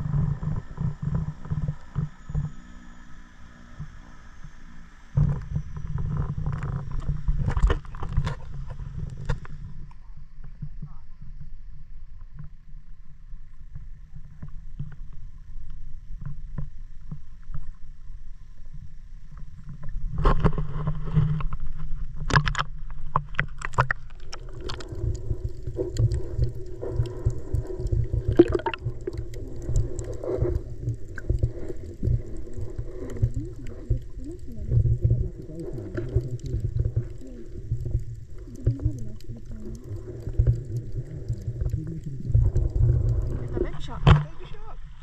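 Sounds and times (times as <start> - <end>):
low rumble: 23.6 - 45.0.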